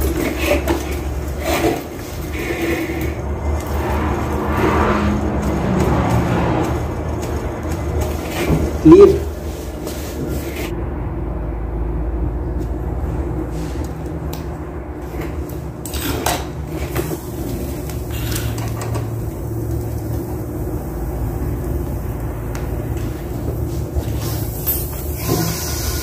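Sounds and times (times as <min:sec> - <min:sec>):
knocks and clatter of tools: 0:00.0 - 0:03.1.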